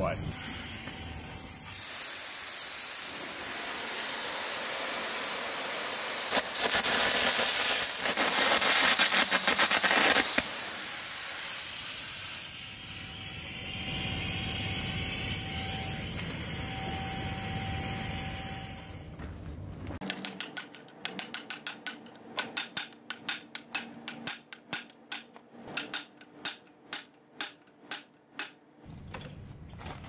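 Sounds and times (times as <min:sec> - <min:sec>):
compressed air hissing: 0:00.2 - 0:16.8.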